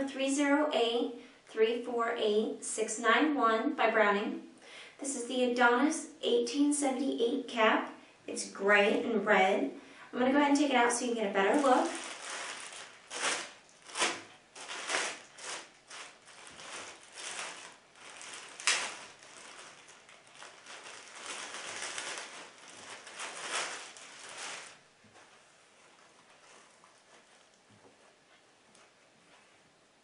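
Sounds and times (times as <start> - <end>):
plastic bag crinkling: 11.0 - 27.6.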